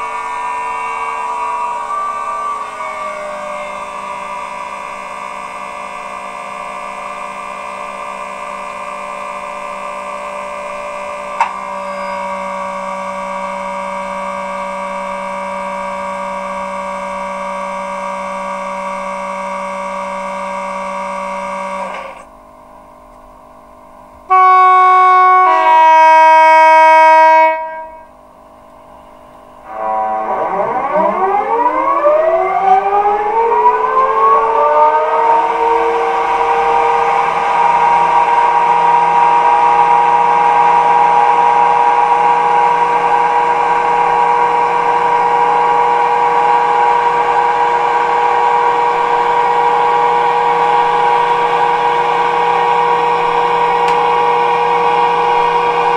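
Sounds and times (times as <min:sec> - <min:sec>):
rising siren-like whines: 0:00.0 - 0:22.2, 0:24.3 - 0:28.2, 0:28.8 - 0:55.9
two-tone train horn: 0:00.0 - 0:22.2, 0:24.2 - 0:28.2, 0:29.6 - 0:55.9
electric locomotive hum and whine: 0:00.0 - 0:55.9
click: 0:11.4 - 0:11.6, 0:53.8 - 0:54.0.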